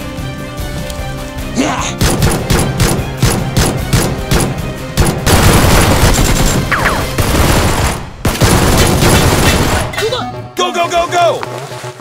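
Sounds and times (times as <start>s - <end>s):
action music with driving beat: 0.0s - 12.0s
rapid gunfire: 2.0s - 10.0s.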